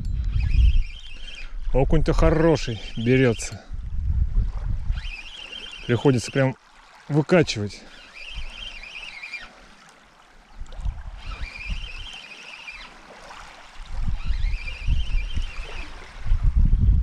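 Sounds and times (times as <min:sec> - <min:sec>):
fishing reel whirring: 0:00.0 - 0:03.7, 0:04.4 - 0:16.5
wind buffeting microphone: 0:00.0 - 0:06.2, 0:08.2 - 0:09.0, 0:10.5 - 0:12.2, 0:13.3 - 0:17.0.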